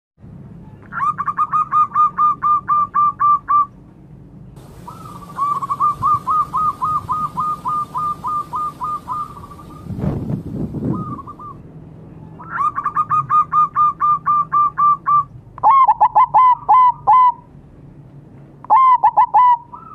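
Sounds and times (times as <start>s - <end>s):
dove cooing: 1.0s - 3.7s, 4.6s - 11.6s, 12.4s - 17.4s, 18.7s - 19.9s.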